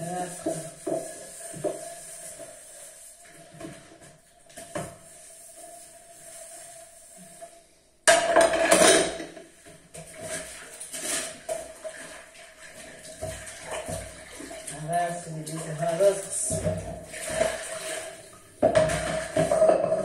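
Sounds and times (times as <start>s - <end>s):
clatter of crockery and metal: 8.1s - 9.4s, 18.6s - 20.0s
dishes knocking: 8.1s - 9.5s, 18.6s - 20.0s.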